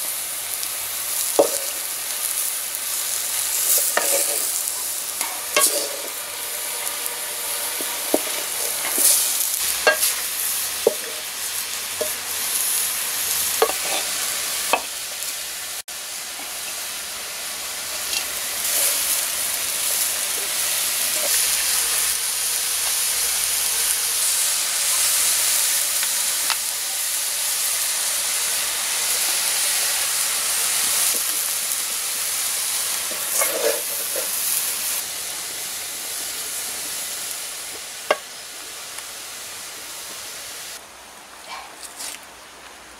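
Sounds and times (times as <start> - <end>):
vegetables sizzling in pot: 0.0 - 40.8
spatula scraping metal pot: 3.7 - 4.6, 5.2 - 10.2, 13.6 - 14.2, 33.1 - 34.3.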